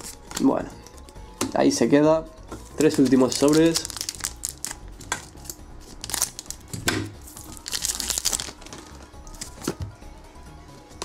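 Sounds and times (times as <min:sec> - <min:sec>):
foil wrapper tearing and crinkling: 0:02.8 - 0:06.6, 0:07.2 - 0:09.5.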